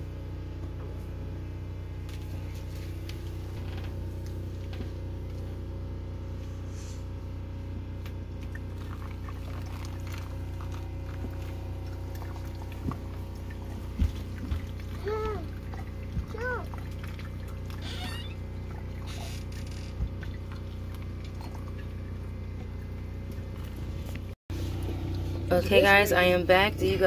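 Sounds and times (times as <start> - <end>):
steady low hum: 0.0 - 27.0
coffee dripping into carafe: 8.4 - 13.6.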